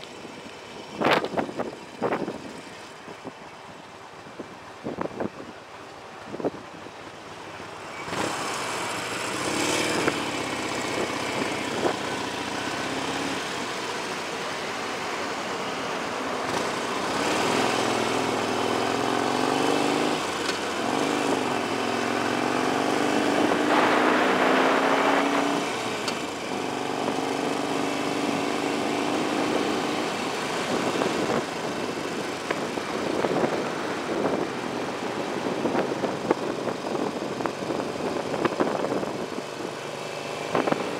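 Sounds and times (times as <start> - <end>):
wind noise on microphone: 0.2 - 3.4, 4.2 - 7.0, 8.1 - 13.6, 19.6 - 40.9
motorcycle engine accelerating: 8.0 - 15.4, 16.0 - 40.9.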